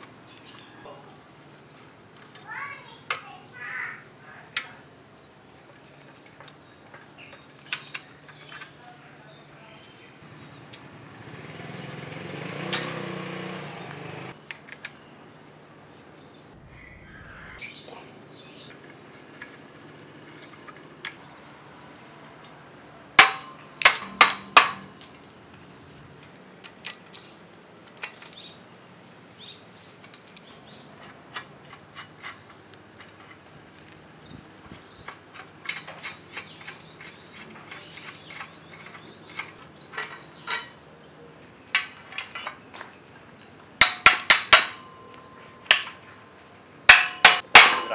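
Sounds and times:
rough scraping rustle: 0:04.8 - 0:14.4
small metal clicks and clinks: 0:31.6 - 0:34.3.

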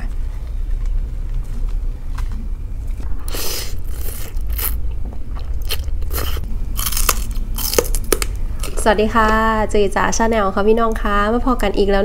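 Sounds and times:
noodles slurping: 0:03.3 - 0:04.8
chewing: 0:03.3 - 0:08.8.

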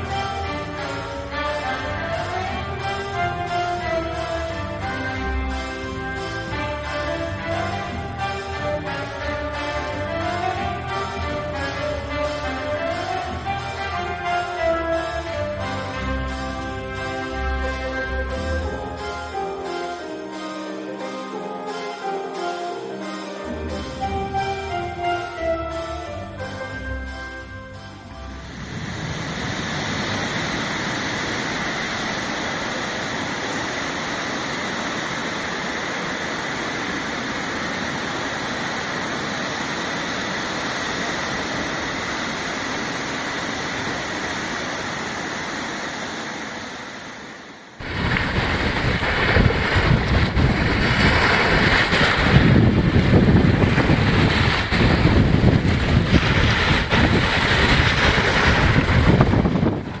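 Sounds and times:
ocean waves on sandy shore: 0:28.2 - 1:00.0
gusty wind buffeting microphone: 0:28.5 - 0:33.8, 0:47.8 - 1:00.0.

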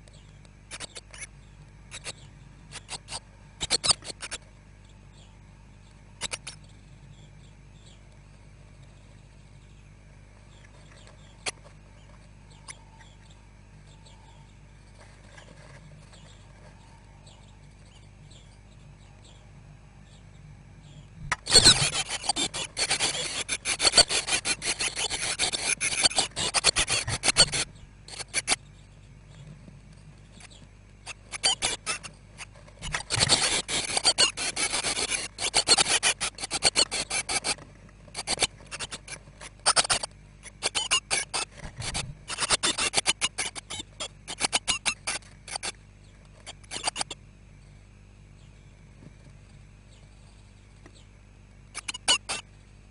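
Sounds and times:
nestlings scratchy rustling in nest box: 0:21.4 - 0:28.6, 0:31.1 - 0:43.7.

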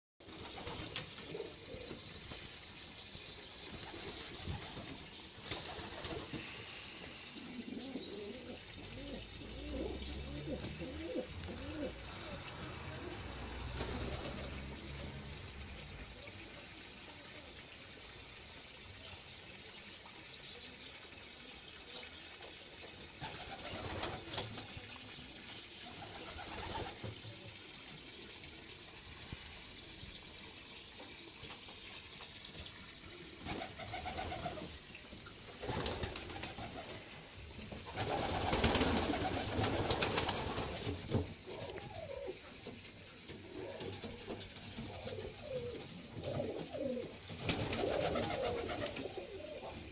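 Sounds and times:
pigeons cooing: 0:00.2 - 0:02.4, 0:03.5 - 0:15.4, 0:33.0 - 0:34.9, 0:35.6 - 0:49.9.

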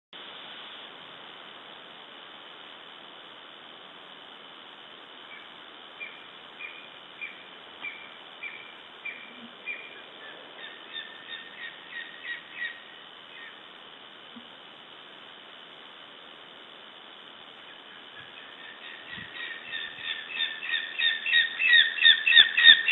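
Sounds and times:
steady hiss: 0:00.2 - 0:22.9
eagles yelping: 0:17.9 - 0:22.9.

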